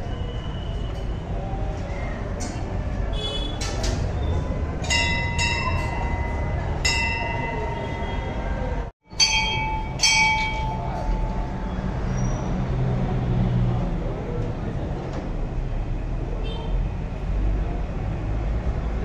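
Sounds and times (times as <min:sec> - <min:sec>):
crowd chatter: 0:00.0 - 0:15.6
brass bells clanging: 0:04.8 - 0:08.4, 0:09.1 - 0:12.1.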